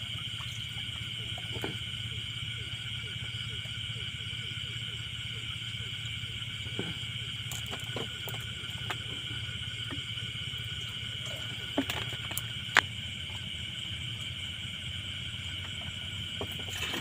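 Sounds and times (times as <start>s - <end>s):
butane stove humming: 0.0s - 17.0s
night insects chirring: 0.0s - 17.0s.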